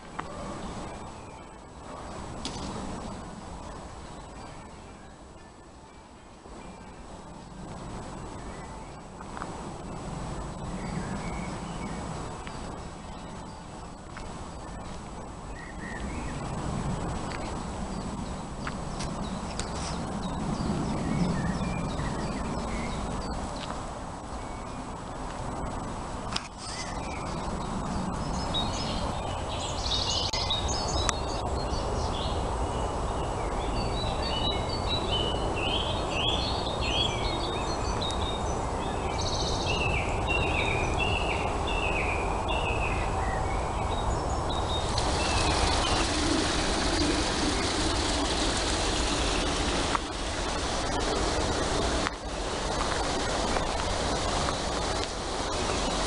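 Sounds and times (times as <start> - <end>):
woodland stream rushing: 44.4 - 56.0.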